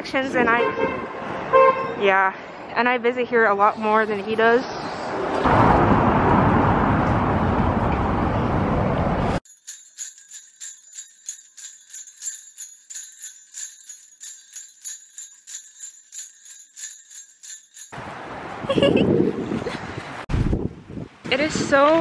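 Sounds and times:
jingle bells shaken: 0:09.4 - 0:18.0
wind buffeting microphone: 0:18.4 - 0:22.0.

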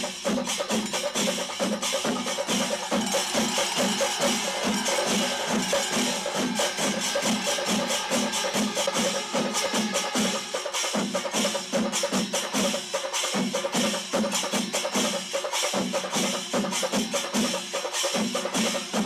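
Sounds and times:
low pulsing drum beat: 0:00.0 - 0:12.7
drums beaten fast with sticks: 0:00.0 - 0:19.0.

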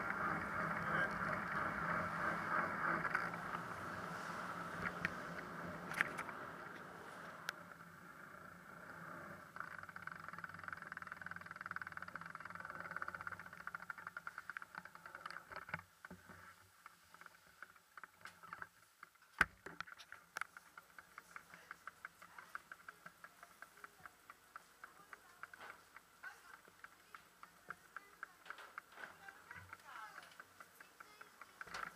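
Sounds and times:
bicycle freewheel ticking: 0:00.0 - 0:15.1, 0:20.2 - 0:31.9.

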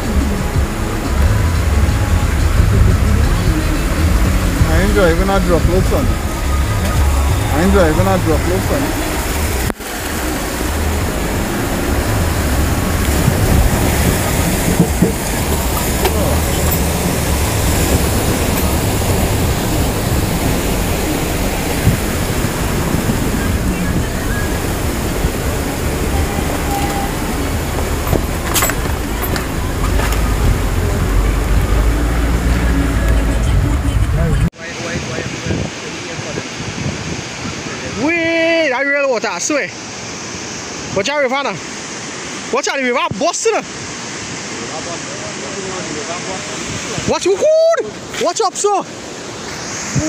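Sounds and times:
car driving rumble: 0:00.0 - 0:34.6
floodwater rushing: 0:00.0 - 0:50.0.

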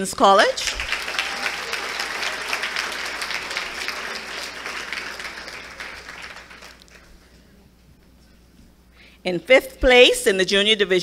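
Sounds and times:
audience applauding: 0:00.5 - 0:07.2.

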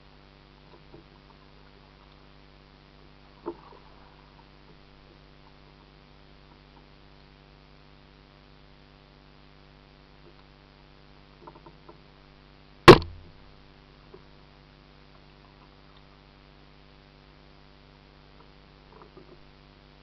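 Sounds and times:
faint camera hum: 0:00.0 - 0:20.0
hard knock on kayak: 0:12.9 - 0:13.4.

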